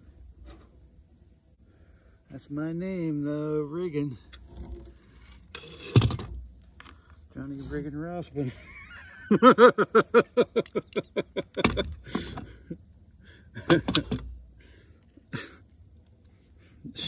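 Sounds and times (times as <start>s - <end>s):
man laughing heartily: 8.4s - 12.9s, 13.5s - 14.2s, 15.2s - 15.7s.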